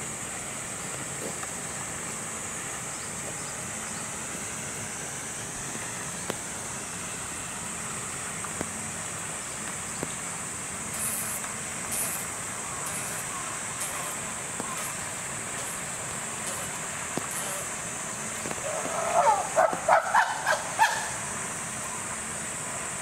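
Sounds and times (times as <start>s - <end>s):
rain hissing: 0.0s - 23.0s.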